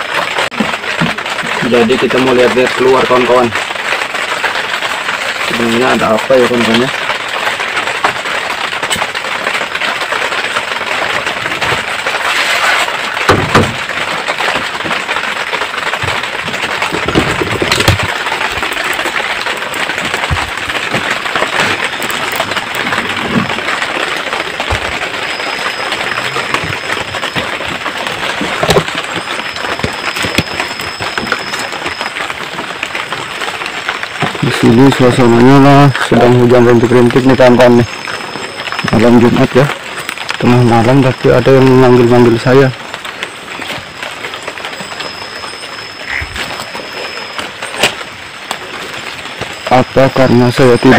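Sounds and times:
light rain falling: 0:00.0 - 0:50.9
sharp knocks: 0:13.2 - 0:13.9.

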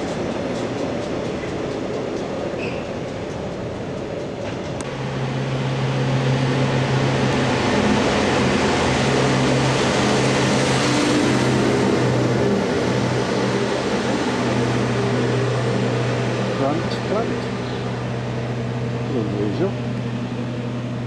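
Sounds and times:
rail machine passing: 0:00.0 - 0:21.0
diesel engine humming: 0:04.8 - 0:21.0.

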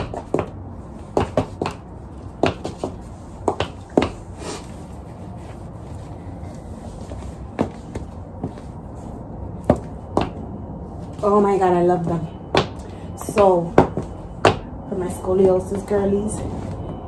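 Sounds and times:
boot footsteps on wooden floor: 0:00.0 - 0:04.3, 0:07.0 - 0:08.9, 0:09.6 - 0:10.4, 0:12.5 - 0:14.6.

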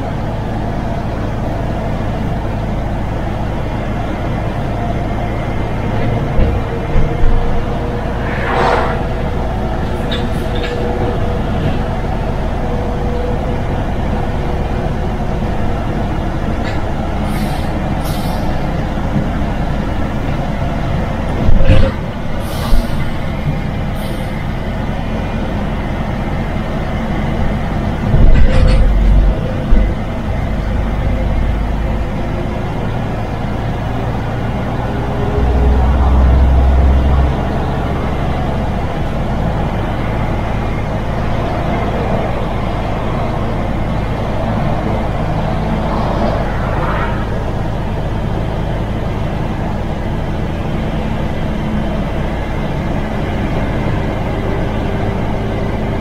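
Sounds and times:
truck diesel engine running: 0:00.0 - 0:08.3, 0:09.0 - 0:56.0
road noise: 0:00.0 - 0:56.0
deep low rumble: 0:06.0 - 0:12.3, 0:44.4 - 0:49.1.

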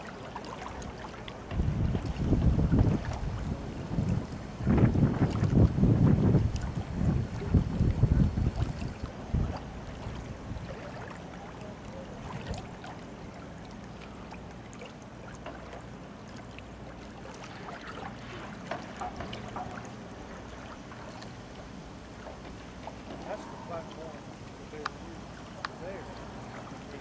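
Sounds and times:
faint moving water: 0:00.0 - 0:27.0
steady low hum: 0:00.0 - 0:27.0
light clicks and ticks: 0:24.7 - 0:25.9.

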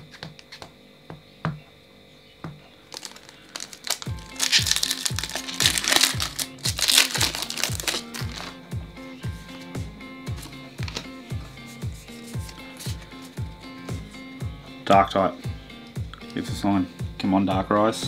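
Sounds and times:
background music with steady beat: 0:00.0 - 0:18.0
foil pack crinkling as torn: 0:02.9 - 0:08.6
cards clicking: 0:03.0 - 0:08.5, 0:10.4 - 0:11.1.

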